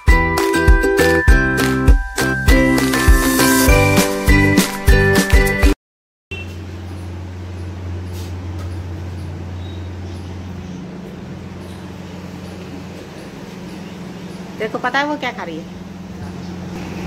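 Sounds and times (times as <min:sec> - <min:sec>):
intro music: 0:00.0 - 0:05.8.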